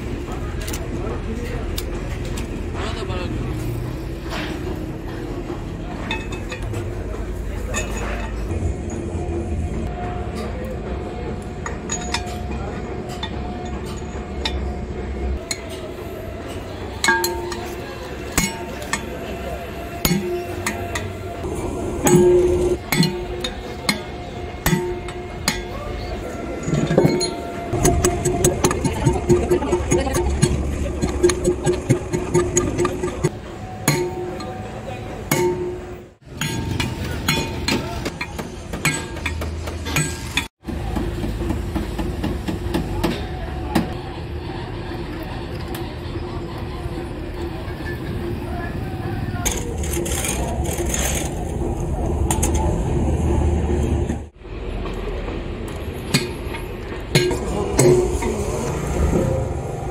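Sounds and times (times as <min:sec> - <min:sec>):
vehicle engines rumbling: 0:00.0 - 0:59.9
metal ringing tone: 0:11.7 - 0:38.3.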